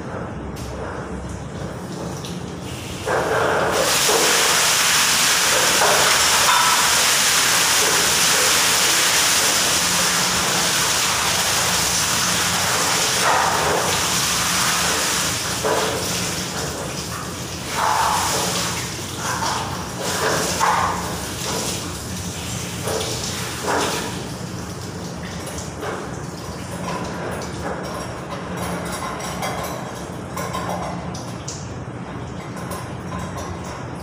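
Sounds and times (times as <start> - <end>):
water gushing and splashing: 2.0 - 27.8.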